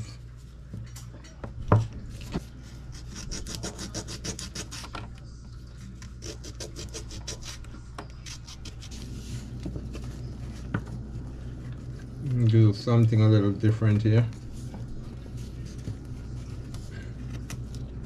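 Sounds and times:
sandpaper rubbing wood: 0:02.9 - 0:04.8.

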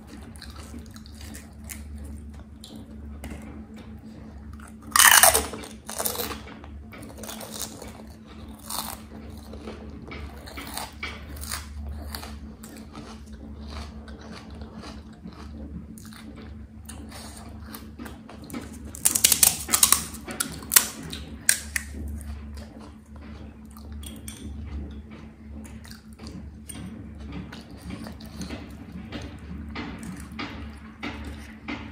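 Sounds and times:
crisp shell crunches: 0:04.9 - 0:06.3, 0:18.9 - 0:20.9.

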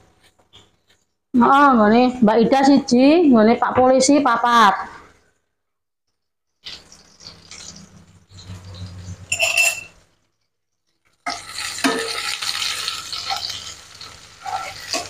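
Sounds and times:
chilies sizzling in hot oil: 0:06.6 - 0:10.2, 0:10.9 - 0:15.0
wooden spatula scraping wok: 0:11.2 - 0:15.0.

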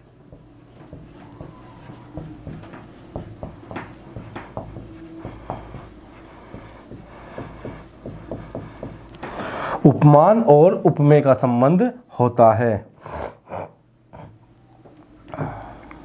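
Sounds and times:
pen tapping and scratching on screen: 0:00.0 - 0:09.4
steady low hum: 0:00.0 - 0:16.0.

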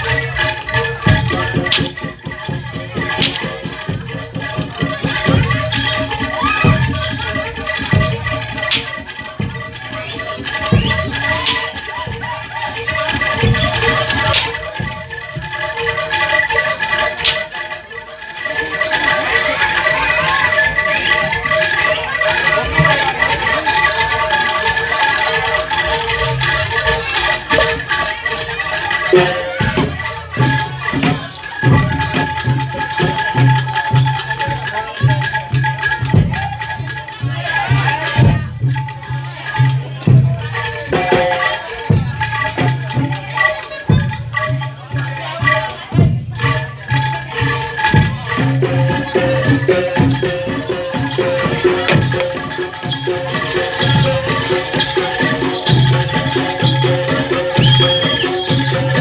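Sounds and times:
held melody line: 0:00.0 - 0:59.0
hand drum strokes: 0:43.9 - 0:59.0.

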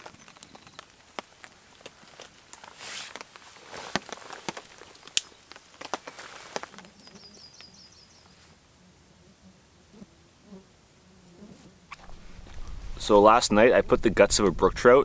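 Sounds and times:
campfire crackling: 0:00.0 - 0:09.2, 0:11.8 - 0:15.0
songbird trilling: 0:07.0 - 0:08.4.

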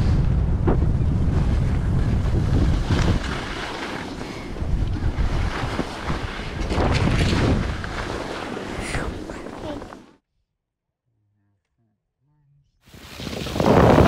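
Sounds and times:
wind buffeting microphone: 0:00.0 - 0:09.8
skis sliding on packed snow: 0:01.3 - 0:10.2, 0:12.9 - 0:14.0.

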